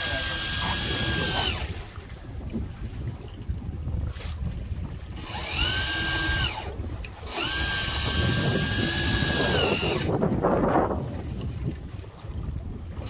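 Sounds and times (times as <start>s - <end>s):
fishing reel motor whining: 0.0s - 2.0s, 4.4s - 10.6s.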